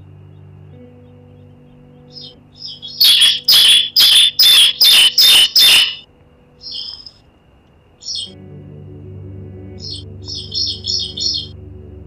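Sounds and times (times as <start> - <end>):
quiet background music: 0.0 - 12.0
bird calling sharp notes: 1.7 - 6.0, 6.6 - 7.2, 9.8 - 11.5.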